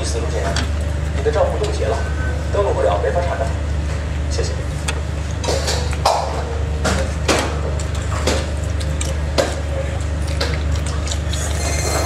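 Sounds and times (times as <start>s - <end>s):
chewing and slurping noodles: 10.0s - 12.0s.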